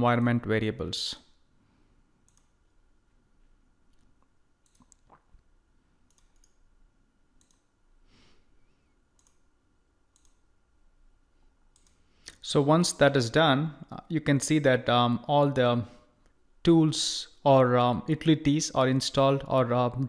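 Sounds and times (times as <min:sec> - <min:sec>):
faint computer mouse clicks: 0:02.2 - 0:02.6, 0:06.1 - 0:06.6, 0:07.4 - 0:07.7, 0:09.2 - 0:09.4, 0:10.1 - 0:10.4, 0:11.7 - 0:12.4.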